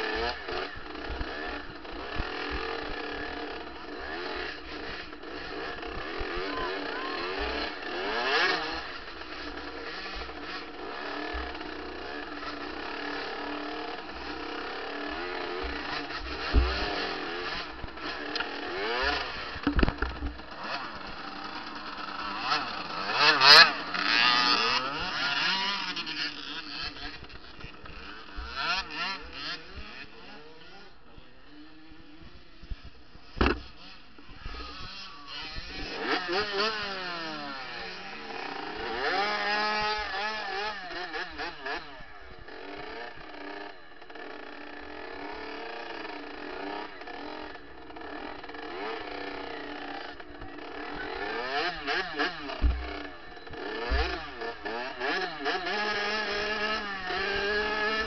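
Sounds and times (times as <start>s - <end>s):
dirt bike engine revving: 0.0s - 58.0s
sharp knocks: 33.4s - 33.6s.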